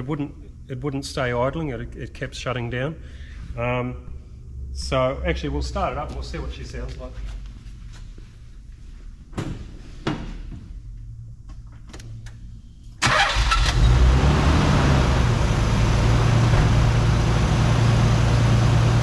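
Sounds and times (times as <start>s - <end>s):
car engine starting and idling: 11.8s - 19.0s.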